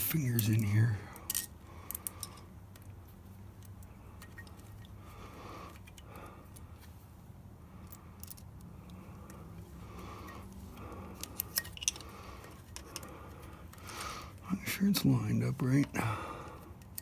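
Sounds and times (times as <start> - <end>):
low steady hum: 0.0 - 17.0
screwdriver clicks and scrapes: 11.1 - 13.1.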